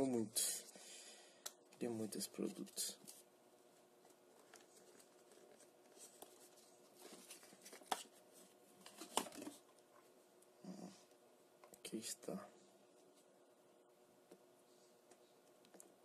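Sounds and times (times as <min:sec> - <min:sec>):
cardboard rustling and scraping: 0:04.4 - 0:09.6.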